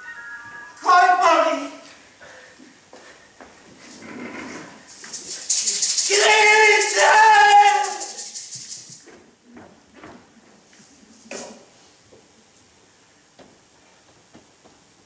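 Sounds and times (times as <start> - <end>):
hand rattle shaken rapidly: 4.8 - 9.2.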